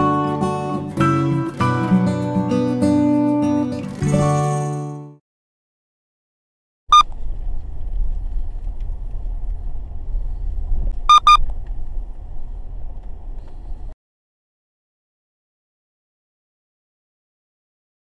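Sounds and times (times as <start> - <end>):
car engine and road rumble: 6.9 - 14.0
short electronic beeps: 11.1 - 11.4.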